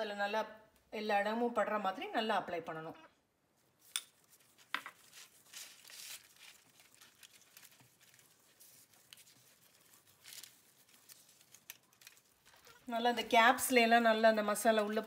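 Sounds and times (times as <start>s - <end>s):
paper and glove crinkling: 3.8s - 12.9s.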